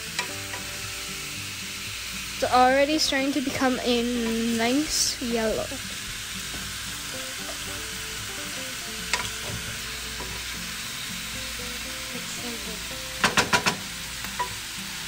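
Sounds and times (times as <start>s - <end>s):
chicken sizzling in a frying pan: 0.0s - 15.0s
wooden spoon knocking on pan: 13.2s - 14.5s.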